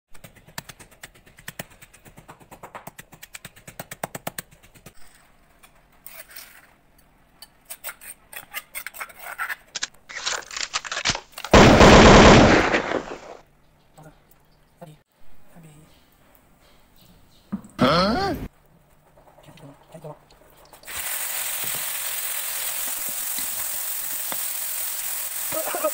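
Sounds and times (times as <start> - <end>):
loud steady hiss: 20.9 - 25.9.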